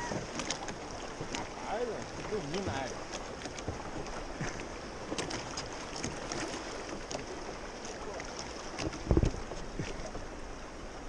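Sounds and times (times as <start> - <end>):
small splashes: 0.0 - 10.3
water lapping against boat hull: 0.0 - 11.0
wind rumbling on microphone: 8.8 - 11.0.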